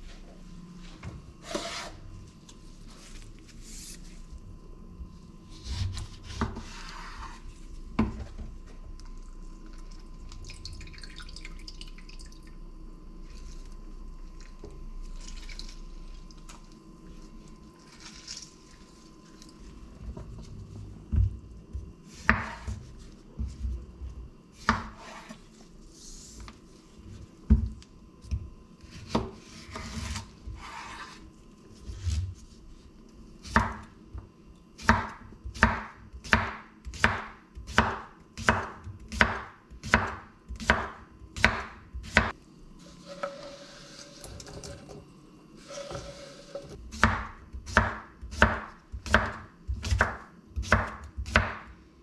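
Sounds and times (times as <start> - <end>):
faint steady hum: 0.0 - 52.0
knife chopping on cutting board: 22.2 - 22.9, 34.8 - 42.3, 46.9 - 51.7.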